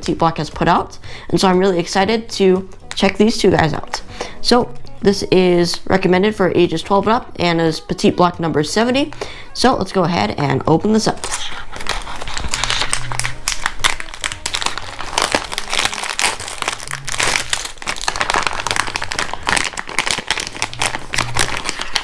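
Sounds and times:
plastic bag crinkling: 11.2s - 22.0s.

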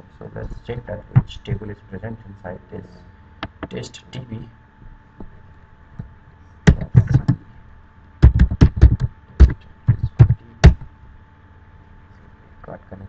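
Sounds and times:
keyboard typing: 8.2s - 10.8s.

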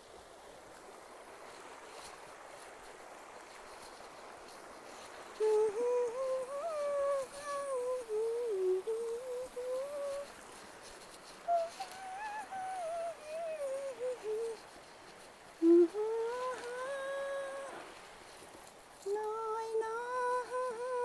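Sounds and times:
creek rushing: 0.0s - 21.0s
woman humming a tune: 5.2s - 18.0s, 19.0s - 21.0s.

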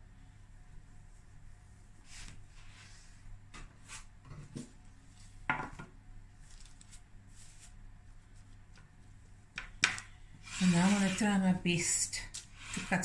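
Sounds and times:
baking paper rustling: 6.3s - 9.3s, 10.5s - 13.0s.

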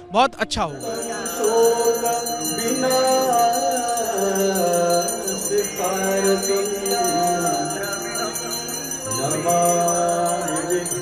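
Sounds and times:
person singing devotional song: 0.7s - 11.0s
hand bells jingling: 0.8s - 11.0s.

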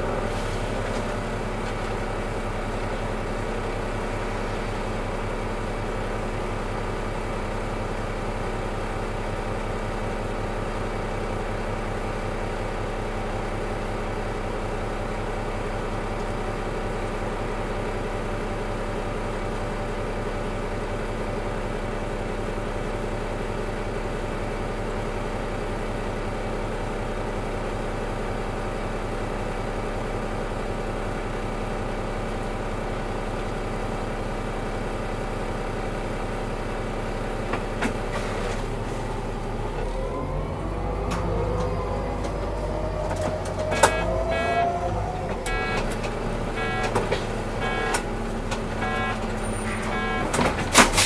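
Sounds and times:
bus engine idling: 0.0s - 51.0s
bus engine revving up: 38.1s - 51.0s.

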